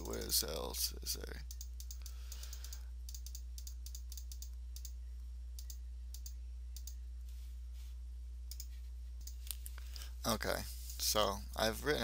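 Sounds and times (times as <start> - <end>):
low electrical hum: 0.0 - 12.0
computer mouse clicking: 1.5 - 5.0, 5.6 - 7.0, 8.5 - 9.6.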